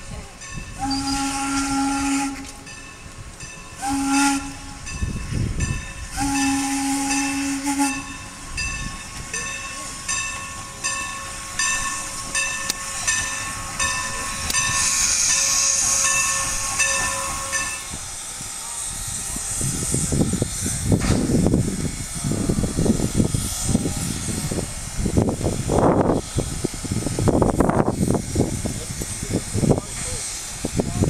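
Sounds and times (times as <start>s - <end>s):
steam hissing: 0.0s - 31.0s
locomotive bell ringing: 0.1s - 1.7s, 2.4s - 18.4s
steam locomotive whistle: 0.7s - 2.8s, 3.8s - 5.2s, 6.0s - 8.8s, 12.1s - 20.2s.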